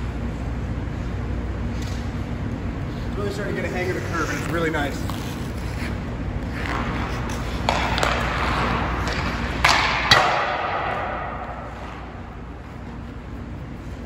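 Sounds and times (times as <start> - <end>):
skates scraping on ice: 2.9 - 14.0
hockey stick hitting puck: 6.5 - 12.5.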